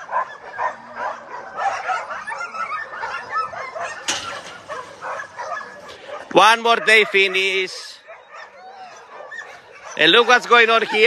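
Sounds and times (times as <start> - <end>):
dogs making high-pitched calls: 0.0 - 11.0
brief clatter: 4.0 - 6.0.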